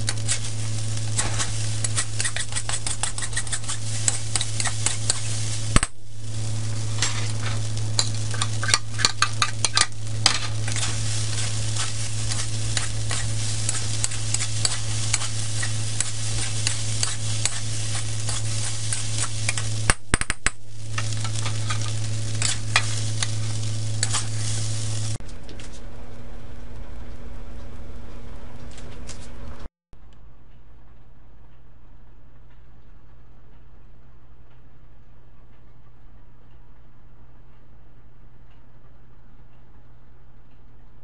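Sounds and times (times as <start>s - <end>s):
spatula scraping a wok: 0.0s - 5.8s, 6.4s - 19.9s, 20.8s - 25.2s
frying sizzle: 0.0s - 25.2s.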